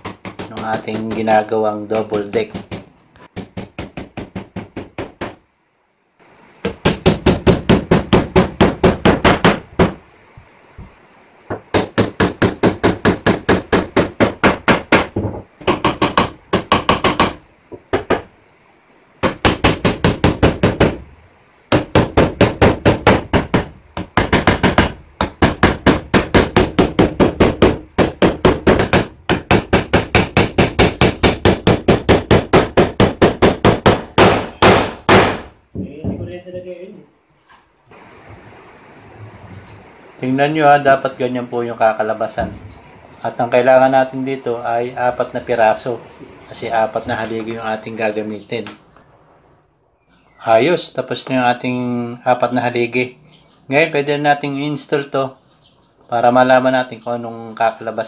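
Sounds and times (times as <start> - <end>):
hammer driving nails into wood: 0.0 - 1.3, 21.7 - 35.6.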